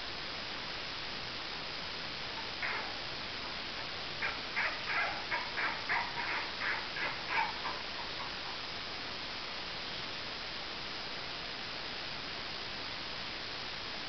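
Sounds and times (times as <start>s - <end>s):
steady hiss: 0.0s - 14.0s
puppies yipping: 2.4s - 3.2s, 4.2s - 8.8s.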